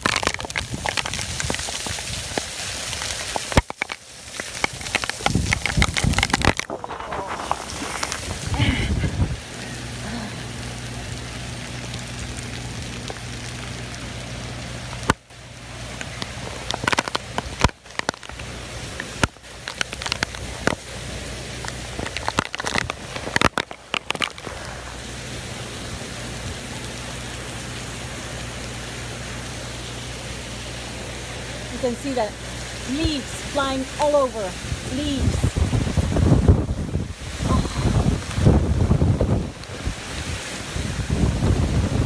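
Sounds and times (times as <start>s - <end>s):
sharp crackles and clicks: 0.0s - 25.2s
torrential rain and wind: 0.0s - 42.0s.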